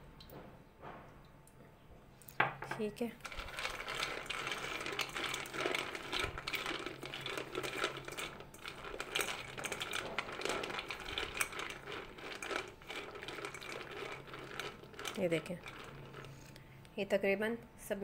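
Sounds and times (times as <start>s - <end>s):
peanuts rattling in metal colander: 3.0s - 16.6s.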